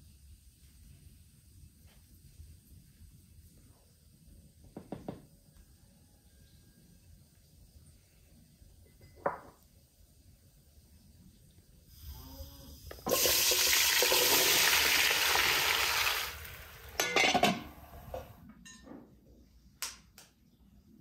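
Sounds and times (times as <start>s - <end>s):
potatoes sizzling in frying pan: 13.0s - 17.2s.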